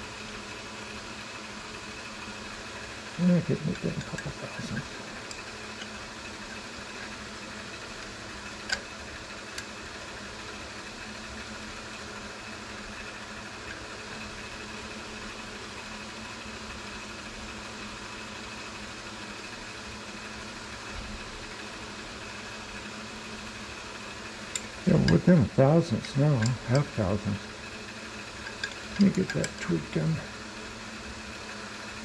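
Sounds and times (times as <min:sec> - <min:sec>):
machinery hum: 0:00.0 - 0:32.0
constant tones: 0:03.2 - 0:07.3, 0:24.5 - 0:27.5, 0:28.2 - 0:30.3.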